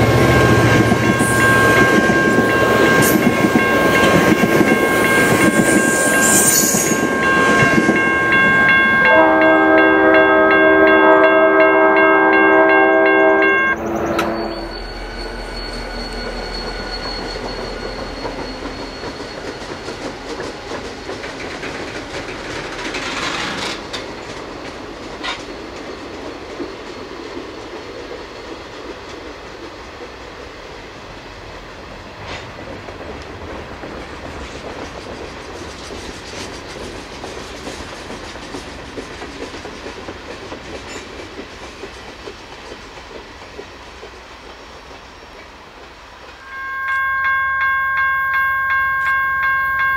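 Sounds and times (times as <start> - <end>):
high wheel squeal: 0.0 - 9.0, 13.6 - 21.1, 46.4 - 49.9
train cars rumbling and rattling: 0.0 - 46.4
train horn: 4.9 - 15.6, 46.4 - 49.9
wheels clacking over rail joints: 15.7 - 30.1, 32.2 - 46.4.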